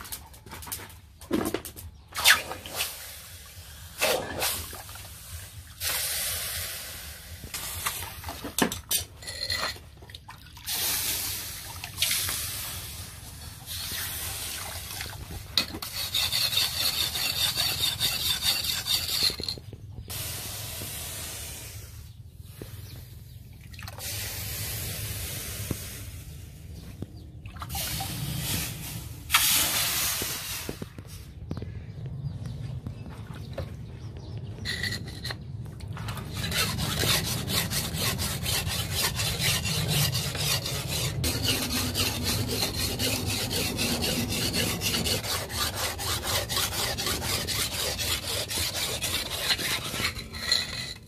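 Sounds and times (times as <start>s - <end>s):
axe scraping on sharpening stone: 8.9s - 9.8s, 15.6s - 19.6s, 46.2s - 51.0s.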